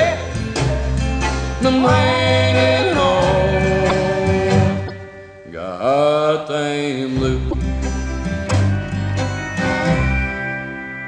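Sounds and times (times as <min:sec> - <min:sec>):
bass line: 0:00.0 - 0:05.6, 0:07.2 - 0:10.3
plucked guitar: 0:00.0 - 0:05.6, 0:07.2 - 0:10.0
country string-band music: 0:00.0 - 0:11.0.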